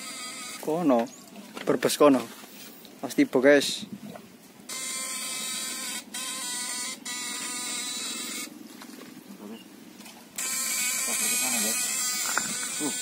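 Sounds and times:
high-pitched electrical buzzing: 0:00.0 - 0:00.9, 0:04.7 - 0:08.6, 0:10.4 - 0:13.0.

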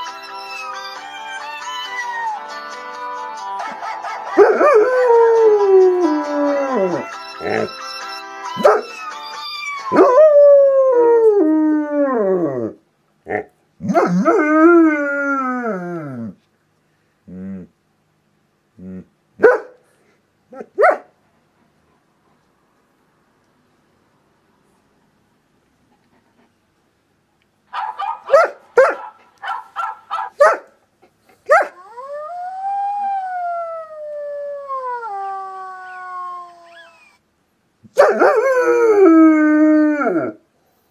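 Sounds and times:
dog howling: 0:04.4 - 0:07.8, 0:31.6 - 0:37.2
phone ringtone melody: 0:07.0 - 0:09.9
dog yelp: 0:08.6 - 0:09.0, 0:27.7 - 0:30.7.

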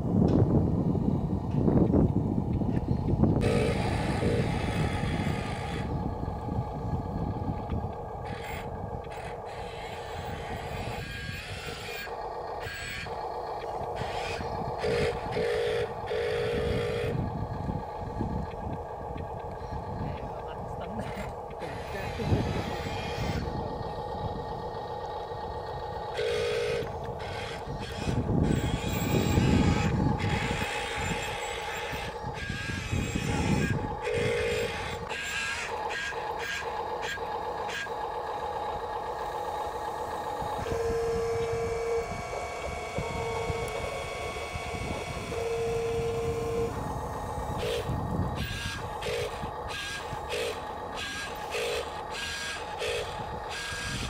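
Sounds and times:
toy truck motor whining: 0:02.6 - 0:54.0.

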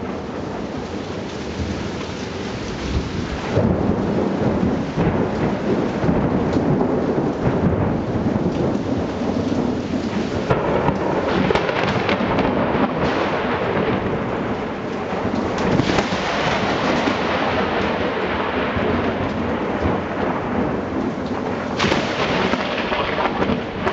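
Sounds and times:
steady rain: 0:00.0 - 0:23.9
thunder rumbling: 0:00.0 - 0:23.9.

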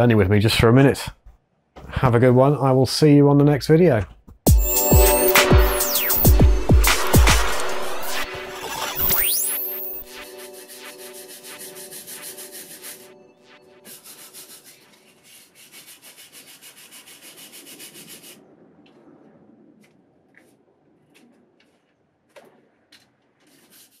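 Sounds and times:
wire brush scrubbing metal: 0:10.4 - 0:13.2, 0:13.8 - 0:18.4.

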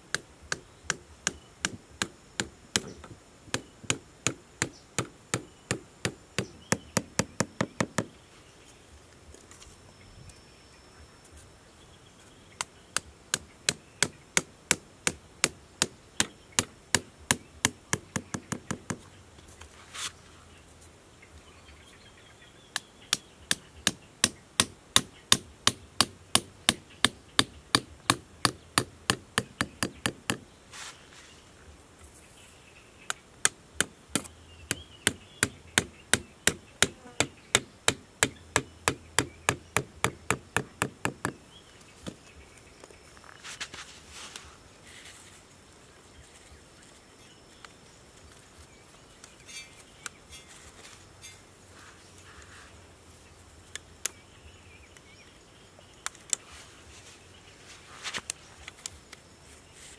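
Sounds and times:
wooden stake hammered into ground: 0:00.0 - 0:08.2, 0:12.6 - 0:19.1, 0:22.7 - 0:30.4, 0:33.1 - 0:41.4.

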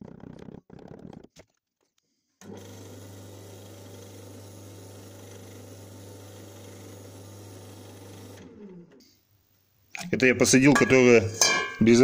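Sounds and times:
electric motor humming: 0:02.4 - 0:08.9.

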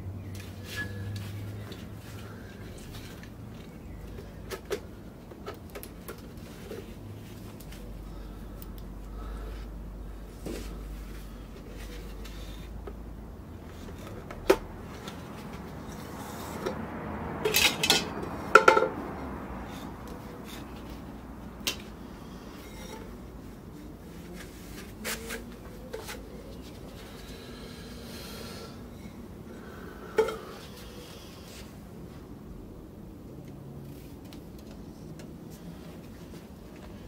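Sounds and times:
metal parts clinking and clattering: 0:17.4 - 0:18.1.

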